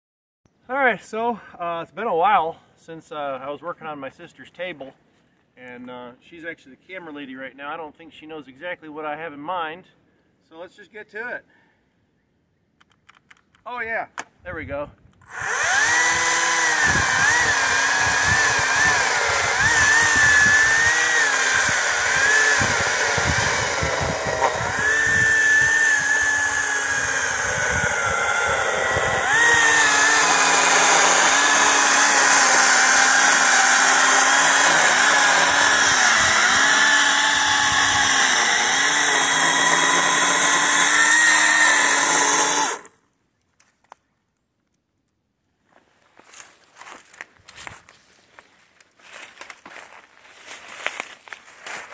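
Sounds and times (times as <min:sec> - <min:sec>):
electric chainsaw cutting log: 0:15.2 - 0:43.0.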